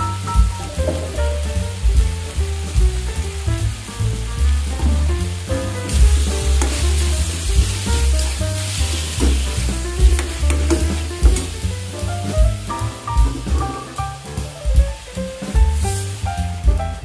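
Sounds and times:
chicken sizzling in pan: 0.0 - 17.0.

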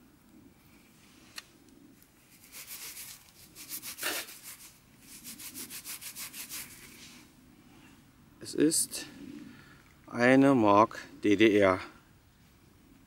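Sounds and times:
fingers rubbing soil off coin: 2.2 - 7.2.

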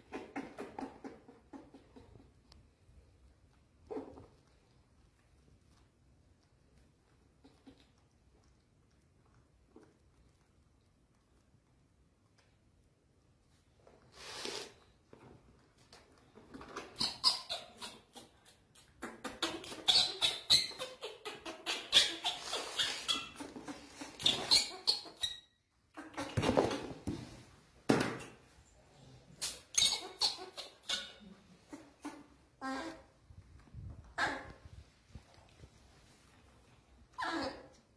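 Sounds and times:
baby macaque crying: 29.7 - 33.1, 34.2 - 34.6.

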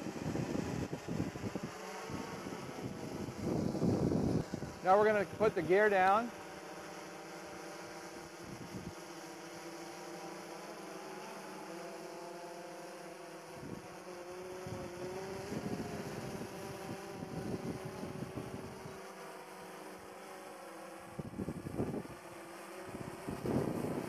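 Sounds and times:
wind gusts on microphone: 0.0 - 6.2, 14.6 - 19.0, 21.0 - 22.2, 22.8 - 24.0
drone rotors humming: 0.0 - 24.0.

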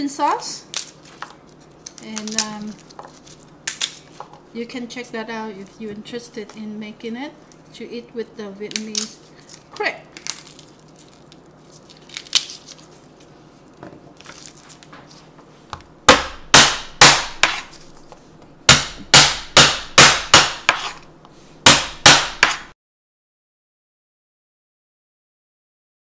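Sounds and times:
garlic skins crackling: 0.1 - 4.2, 8.6 - 15.2
knife chopping on wooden board: 16.1 - 17.8, 18.7 - 21.0, 21.6 - 22.7.

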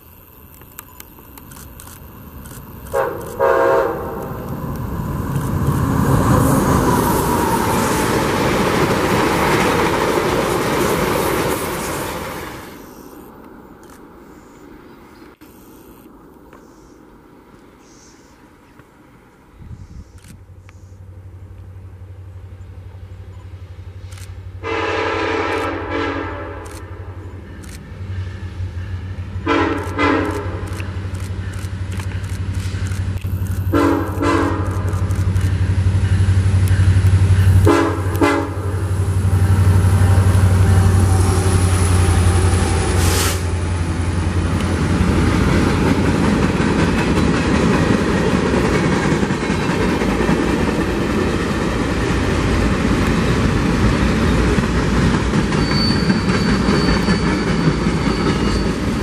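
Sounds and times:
locomotive engine rumble: 0.0 - 13.0, 19.6 - 59.0
train wheels on rails: 0.0 - 59.0
train air horn blasts: 2.9 - 4.5, 24.6 - 27.2, 28.1 - 30.6, 33.7 - 34.9, 36.8 - 43.6.

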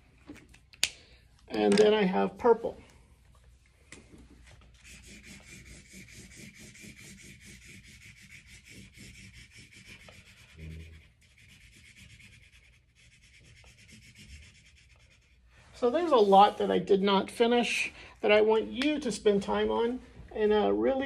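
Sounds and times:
crayon scribbling on paper: 4.8 - 15.4.

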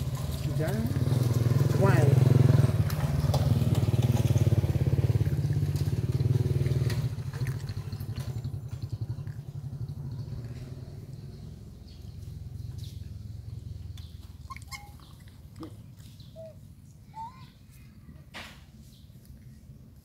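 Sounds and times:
motor engine droning: 0.0 - 14.4.

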